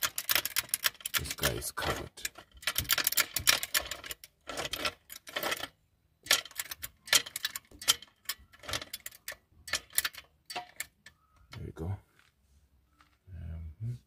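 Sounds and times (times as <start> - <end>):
tools clattering: 2.0 - 11.1.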